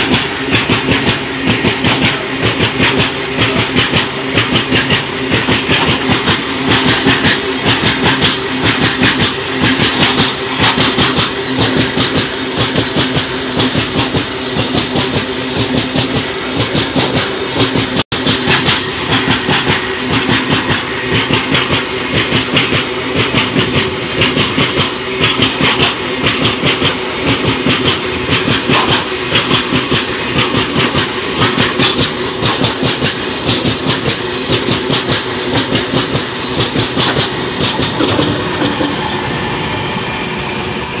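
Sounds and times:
train wheels clacking on rail joints: 0.0 - 39.3
freight train rumble and rattle: 0.0 - 41.0.

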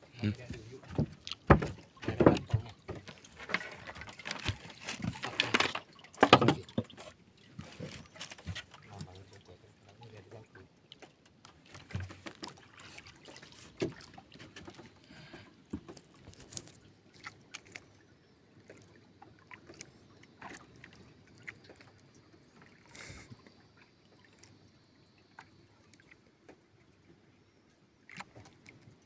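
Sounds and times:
wooden canoe clicks and knocks: 0.4 - 10.0, 10.9 - 17.8.

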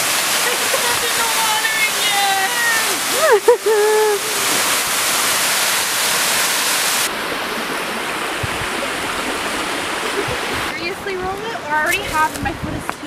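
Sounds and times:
waterfall rushing: 0.0 - 12.7
low thumps: 8.2 - 11.4.

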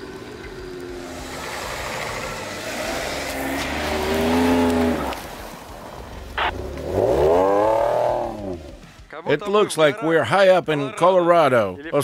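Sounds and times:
engine revving hard: 0.9 - 5.3, 6.4 - 8.8.

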